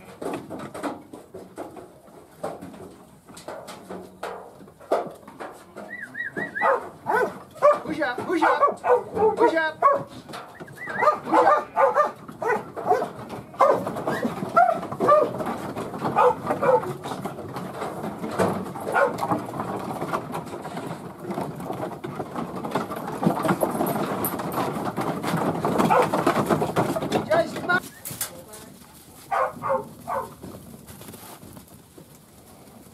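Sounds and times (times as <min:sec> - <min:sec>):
dog barking: 0:06.6 - 0:10.1, 0:11.0 - 0:13.8, 0:14.6 - 0:15.3, 0:16.2 - 0:16.9, 0:18.9 - 0:19.2, 0:25.9 - 0:26.1, 0:29.3 - 0:30.3.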